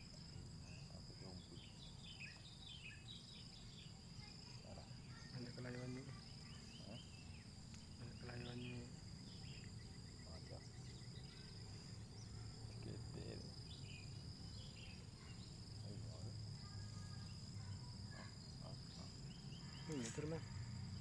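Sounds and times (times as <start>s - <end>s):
high-pitched insect drone: 0.0s - 21.0s.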